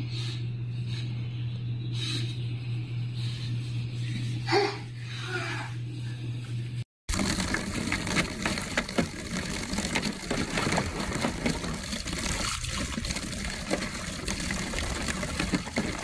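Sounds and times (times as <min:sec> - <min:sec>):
puppy splashing water: 0:07.1 - 0:16.0
water spraying into a pool: 0:07.1 - 0:16.0.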